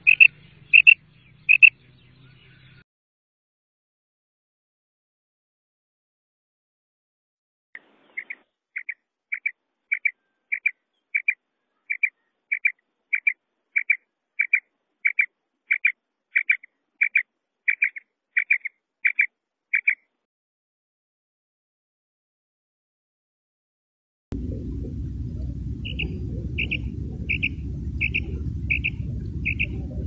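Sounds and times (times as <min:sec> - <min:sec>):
quail calling paired notes: 0:00.0 - 0:01.8, 0:07.8 - 0:20.1, 0:25.8 - 0:29.8.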